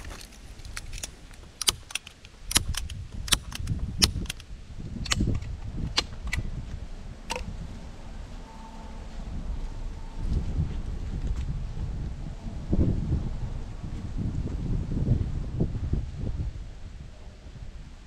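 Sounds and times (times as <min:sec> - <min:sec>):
wind rumble on microphone: 0:00.0 - 0:18.0
staple gun snapping: 0:00.7 - 0:04.4.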